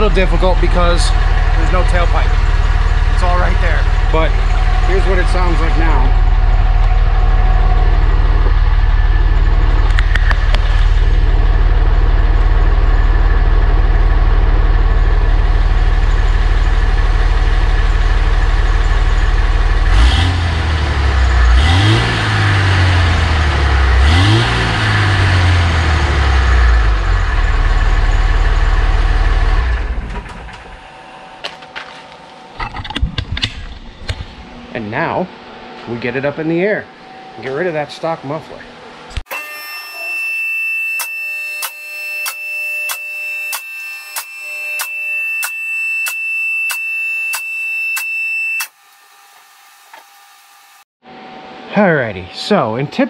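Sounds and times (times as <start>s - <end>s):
diesel engine idling and revving: 0.0s - 31.2s.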